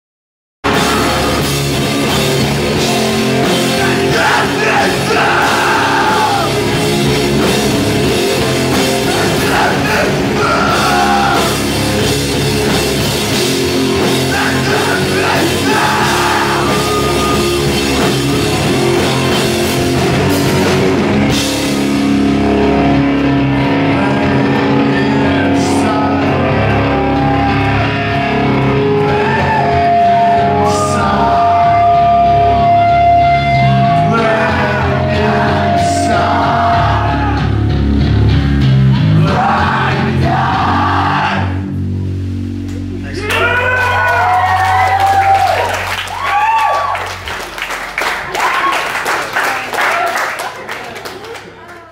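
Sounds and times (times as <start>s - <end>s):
vocals: 0.6s - 12.3s, 13.3s - 19.7s, 23.6s - 37.9s, 38.8s - 41.7s, 43.0s - 44.3s
rock band playing: 0.6s - 49.8s.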